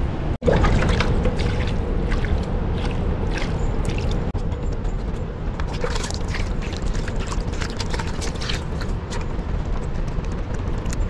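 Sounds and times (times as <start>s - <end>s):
steady low rumble: 0.0s - 11.0s
water splashing on fish: 0.4s - 4.3s.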